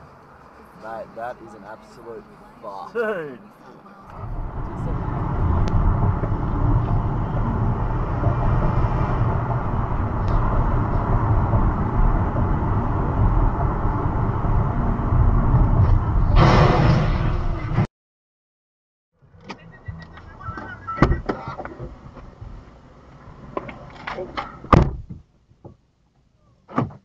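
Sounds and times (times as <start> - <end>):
car road and engine rumble: 0.0 - 17.9, 19.2 - 27.0
loud rushing noise: 4.1 - 17.9.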